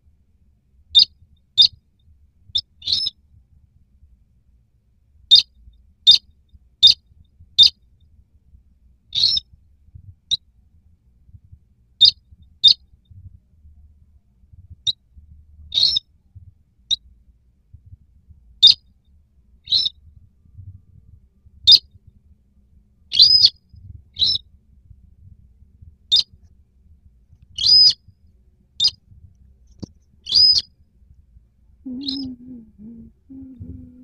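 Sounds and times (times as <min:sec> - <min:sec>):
bird calling high-pitched notes: 0:31.9 - 0:32.4.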